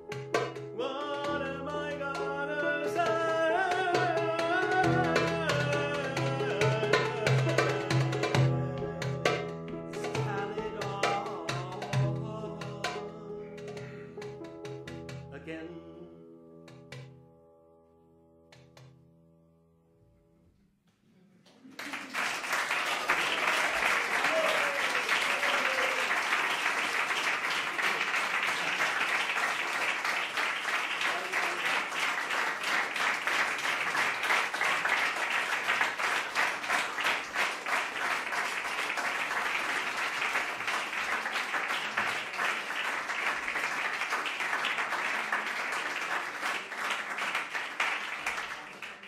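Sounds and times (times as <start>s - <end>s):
audience applauding: 3.6s - 11.8s, 21.4s - 49.0s.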